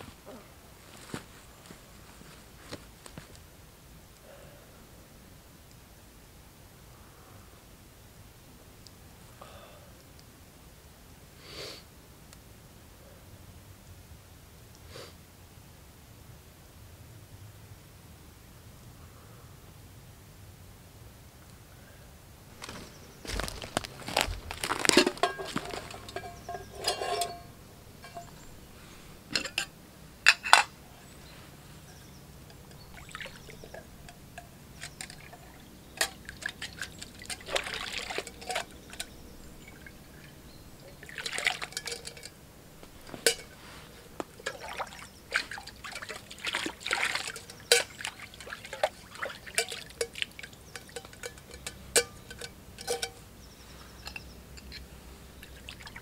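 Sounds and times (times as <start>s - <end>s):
water splashing and trickling: 22.6s - 53.2s, 54.0s - 56.0s.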